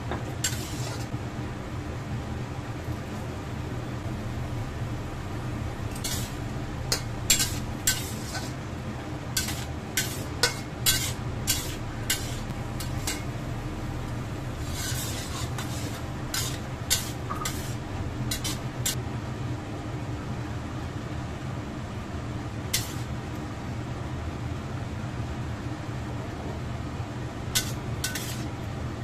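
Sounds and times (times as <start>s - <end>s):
low hum: 0.0s - 20.0s
metal spatula scraping a wok: 0.4s - 1.1s, 5.9s - 8.6s, 9.3s - 13.4s, 14.5s - 19.0s, 22.8s - 23.1s, 27.6s - 28.5s.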